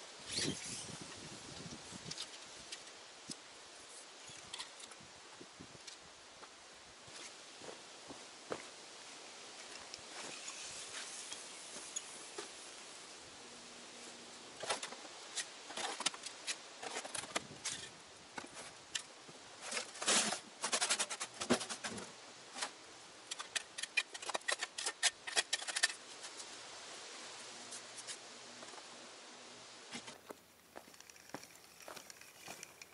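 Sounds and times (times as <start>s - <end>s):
soil and stones clattering: 30.8s - 32.9s.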